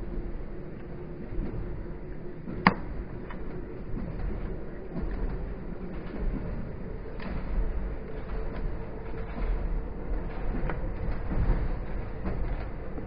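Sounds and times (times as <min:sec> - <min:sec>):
steady hum: 0:00.0 - 0:13.0
train rumble: 0:00.0 - 0:13.0.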